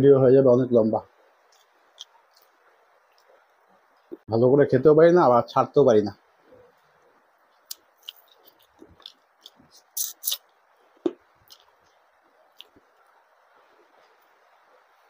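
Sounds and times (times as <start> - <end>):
wet chewing clicks and smacks: 1.5 - 3.4, 7.5 - 12.9.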